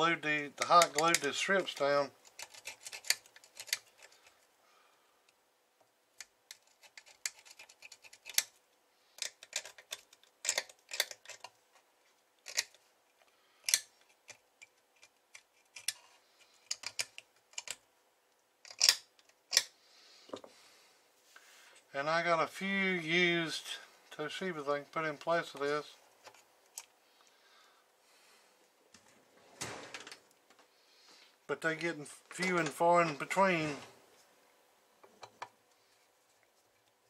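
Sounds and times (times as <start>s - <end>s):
hand tool scraping circuit board: 0.6s - 4.2s.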